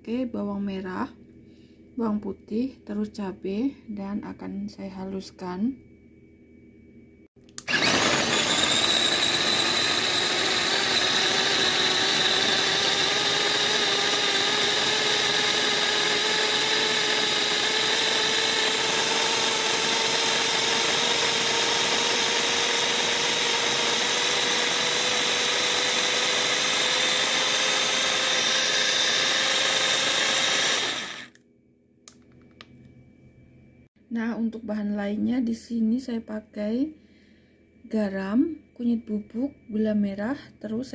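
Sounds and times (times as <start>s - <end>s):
electric food chopper motor: 7.6s - 31.4s.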